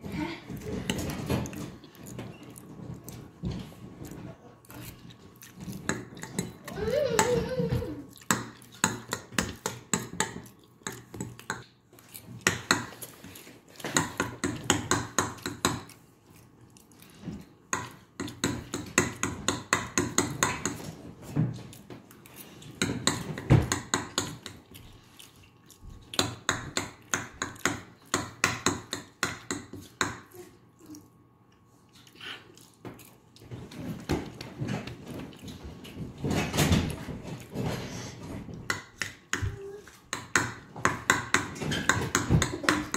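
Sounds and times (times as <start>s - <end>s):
chewing: 0.2s - 18.6s, 21.6s - 23.4s, 24.1s - 27.6s, 29.8s - 36.3s.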